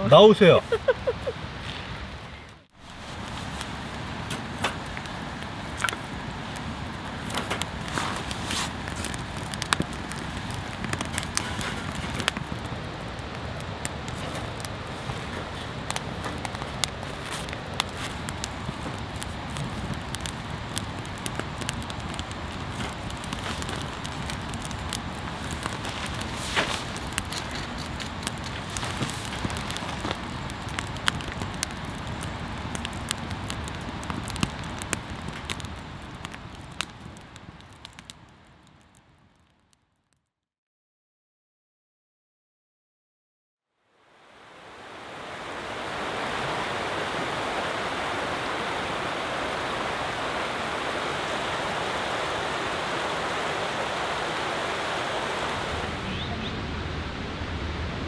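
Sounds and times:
firewood crackling: 0.0 - 39.8, 44.1 - 58.0
sharp pops of burning wood: 2.8 - 39.5
quiet outdoor background: 43.6 - 58.0
stream rushing over rocks: 44.0 - 58.0.

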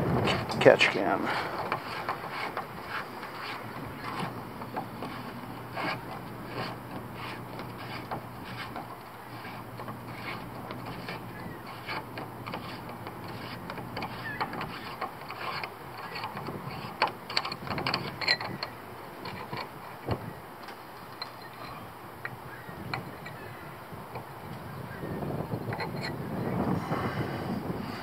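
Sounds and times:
small clicks taps and scrapes: 1.5 - 23.4, 25.7 - 26.1.

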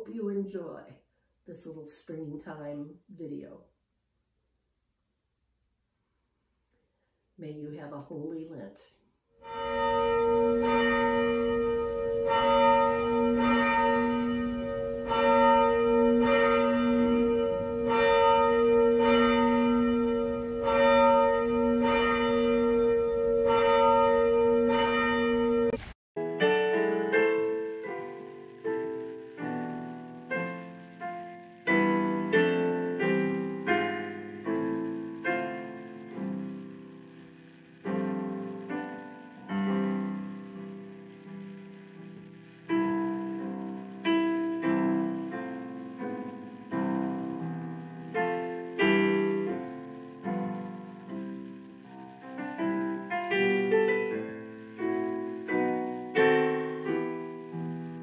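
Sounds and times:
church bell tolling: 9.4 - 25.8
gentle piano melody: 9.6 - 58.0.

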